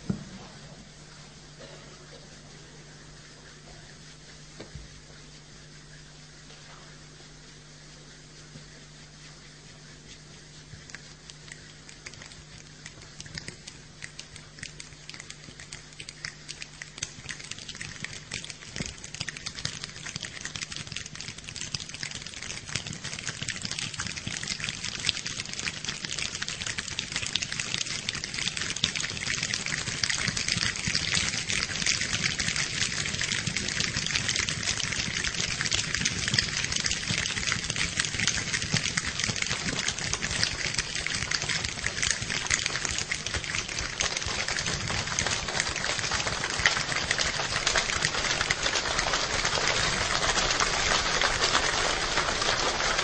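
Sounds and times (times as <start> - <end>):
finger snaps and claps imitating rain: 10.8 - 53.0.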